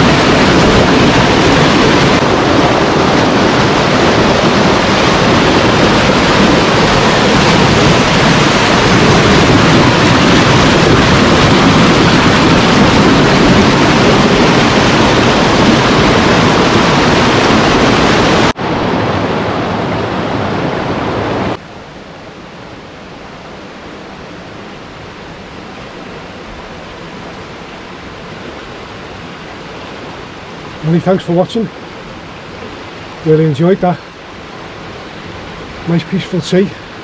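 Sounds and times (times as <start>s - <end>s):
river rushing over rocks: 0.0s - 37.0s.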